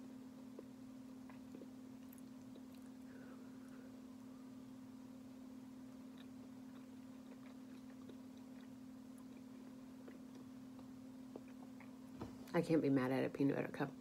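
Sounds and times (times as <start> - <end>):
steady low hum: 0.0 - 14.0
faint chewing: 0.5 - 4.0, 5.7 - 12.2.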